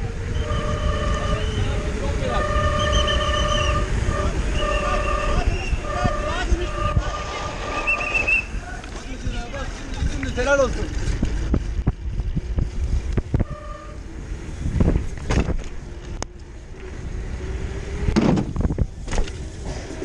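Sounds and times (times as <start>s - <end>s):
mountain bike rattling over rough ground: 8.7s - 13.1s.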